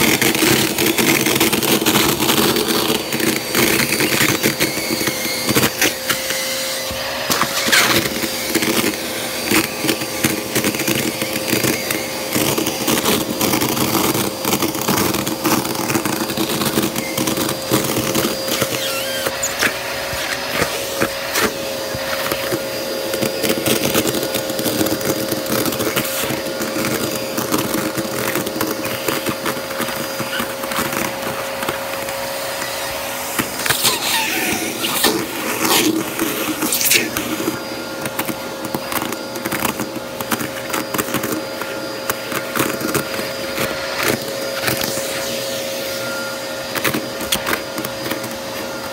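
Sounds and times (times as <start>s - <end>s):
vacuum cleaner whine: 0.0s - 48.9s
tissue paper crackling: 12.4s - 45.1s.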